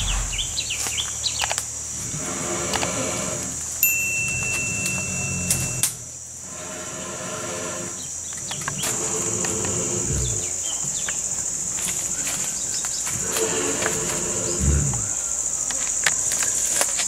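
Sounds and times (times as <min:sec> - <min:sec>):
sharp clicks: 0:00.0 - 0:01.7
high-pitched insect drone: 0:00.0 - 0:17.0
flat electronic tone: 0:03.8 - 0:06.0
faint clicks and rustles: 0:08.2 - 0:17.0.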